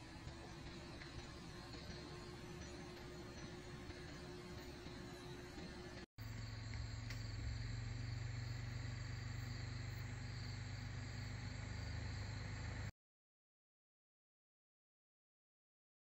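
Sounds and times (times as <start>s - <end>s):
steady low hum: 0.0s - 12.9s
crickets trilling: 6.2s - 12.5s.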